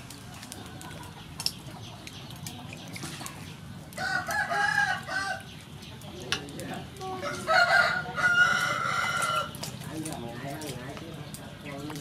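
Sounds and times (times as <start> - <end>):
water splashing in metal bowl: 0.0 - 7.5
rooster crowing: 4.0 - 5.5, 7.2 - 9.5.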